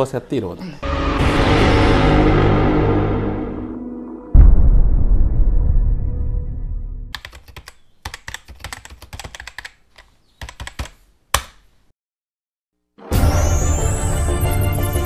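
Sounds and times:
low musical hit: 0.8s - 7.1s
keyboard key clicks: 7.2s - 11.6s.

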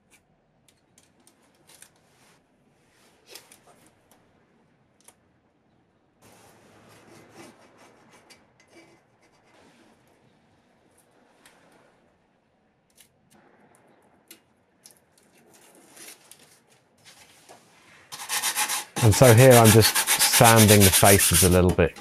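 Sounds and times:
tape rubbing and rustling: 15.2s - 22.0s.

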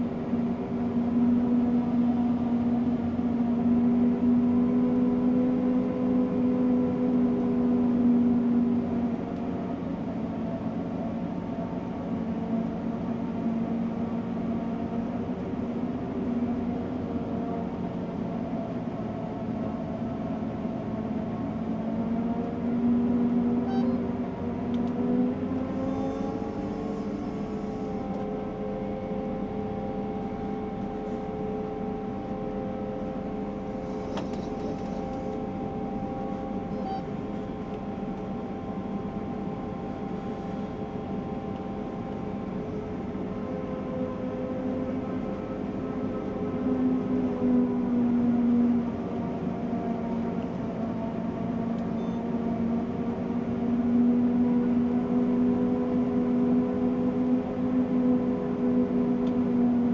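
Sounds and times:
forage harvester droning: 25.0s - 46.2s.

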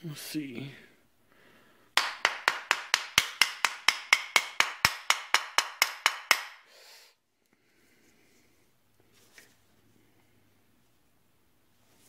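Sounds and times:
hammer tapping metal pin: 2.0s - 6.6s.

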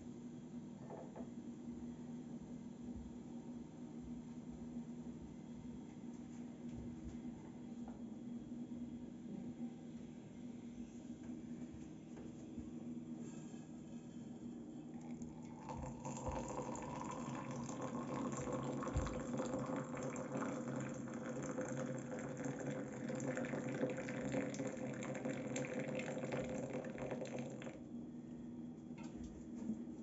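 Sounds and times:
hot water pouring into mug: 15.0s - 27.8s.

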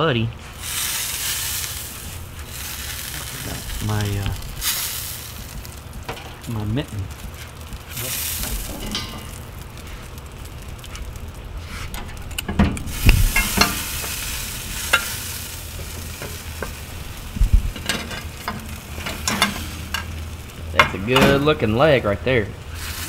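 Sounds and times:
meat sizzling: 0.4s - 23.0s
metal tongs clinking on grate: 5.5s - 6.5s, 7.7s - 9.6s, 11.9s - 16.8s, 17.8s - 20.2s.

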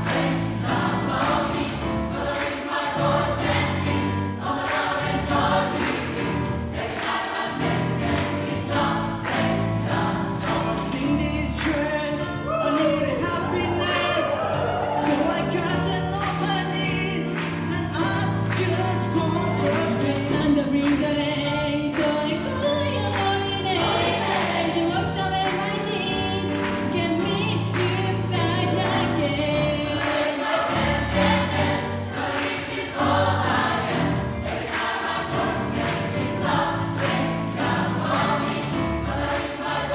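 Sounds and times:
gospel choir singing: 0.0s - 39.9s.

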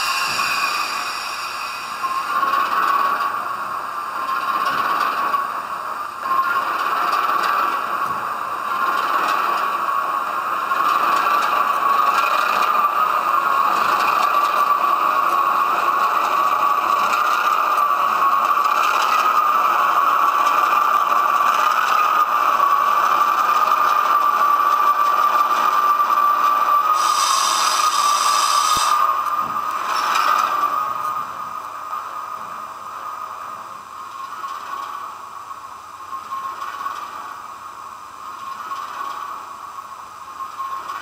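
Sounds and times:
brief hiss: 26.9s - 29.1s.

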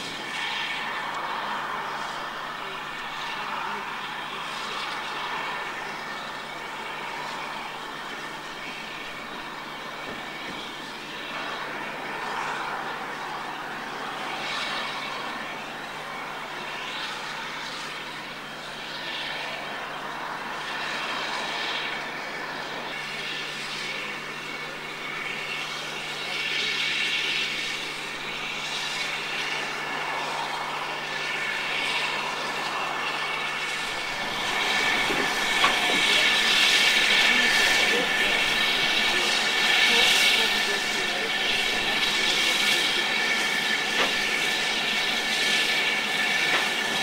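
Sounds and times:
steam locomotive exhaust and hiss: 0.0s - 47.0s.

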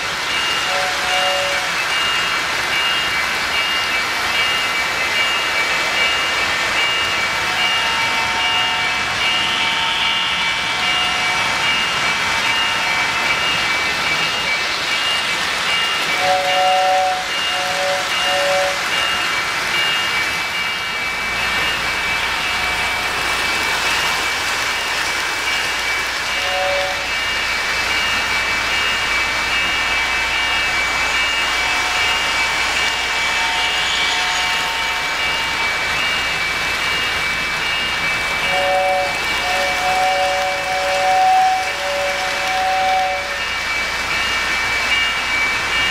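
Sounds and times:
metal wheels rumbling on rail: 0.0s - 45.9s.

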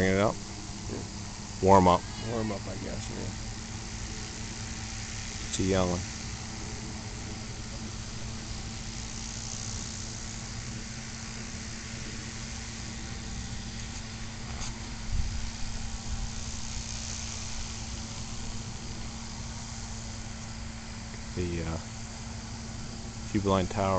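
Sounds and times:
small model engine droning: 0.0s - 23.9s
steady hiss: 0.0s - 23.9s.

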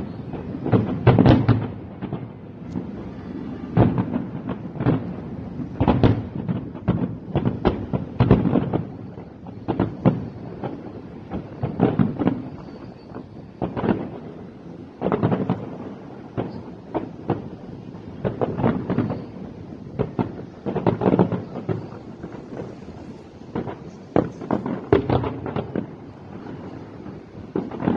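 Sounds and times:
fireworks bursting: 0.0s - 27.9s.

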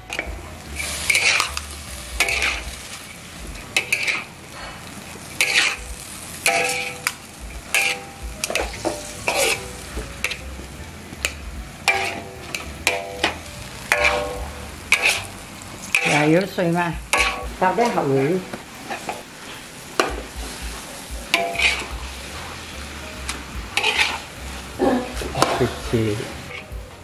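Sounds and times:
metal ladle scraping a wok: 0.0s - 10.5s, 11.2s - 16.5s, 17.1s - 26.7s
noodles sizzling in a wok: 0.0s - 27.0s.

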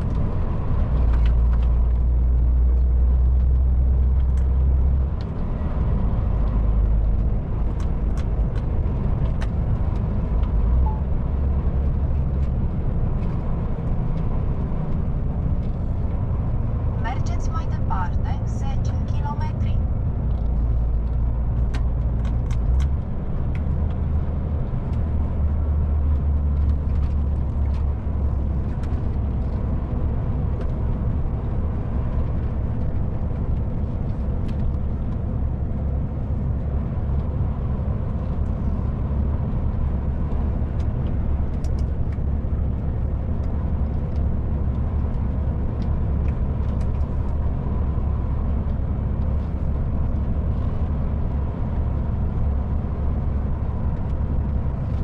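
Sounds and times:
road noise: 0.0s - 55.0s
truck diesel engine droning: 0.0s - 55.0s.

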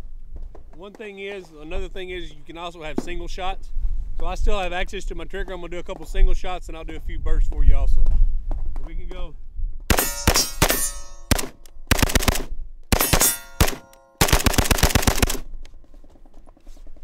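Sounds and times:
steel targets ringing: 9.9s - 11.4s, 13.0s - 14.2s
rifle shots: 9.9s - 15.5s
rifle bursts: 9.9s - 15.6s.

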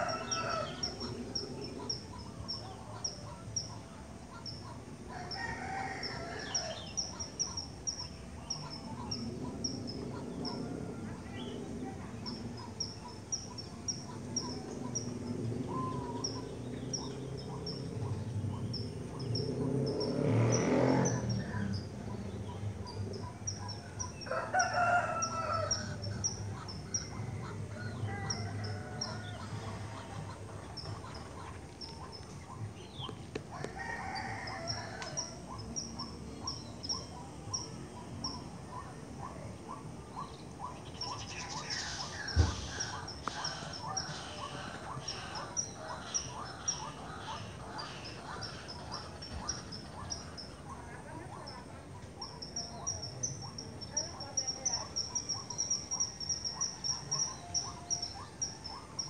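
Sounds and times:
rooster crowing: 0.0s - 1.2s, 5.1s - 7.0s, 23.9s - 26.0s, 27.1s - 29.9s, 33.5s - 35.6s
thump: 42.3s - 42.7s.

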